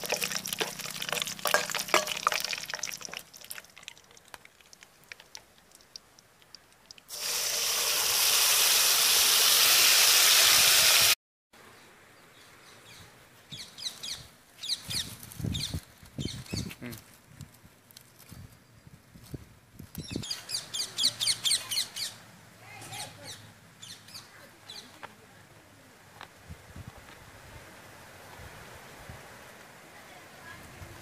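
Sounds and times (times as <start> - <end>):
water gushing into pot: 0.0 - 11.2.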